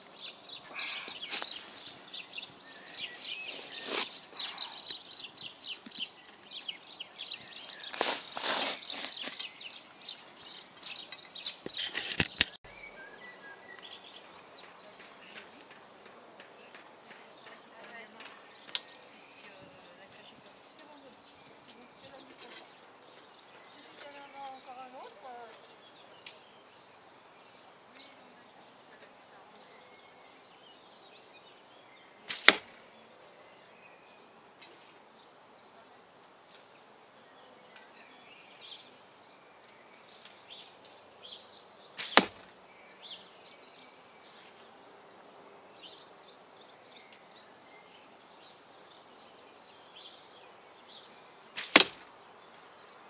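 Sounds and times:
arrows hitting foam target: 32.3 - 32.7, 42.0 - 42.5, 51.6 - 52.0.

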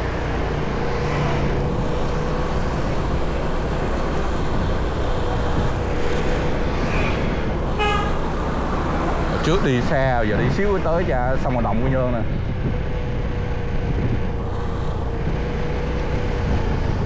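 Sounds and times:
traffic noise: 0.0 - 17.0.

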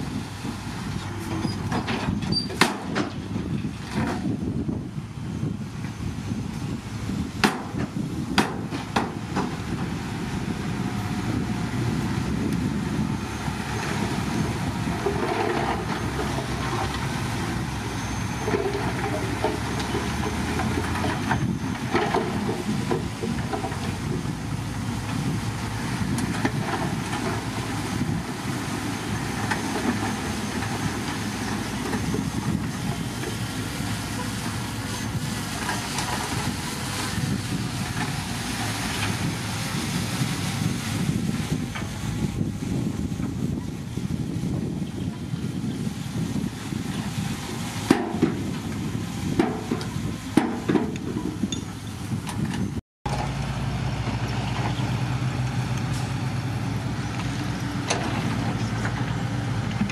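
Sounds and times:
excavator diesel engine running: 0.0 - 59.9
sharp knocks and clanks: 7.4 - 9.5, 49.4 - 51.7.

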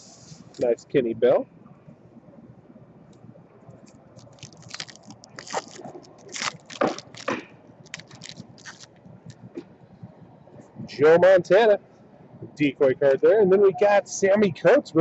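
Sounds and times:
wrapper tearing and crinkling: 4.2 - 8.9.

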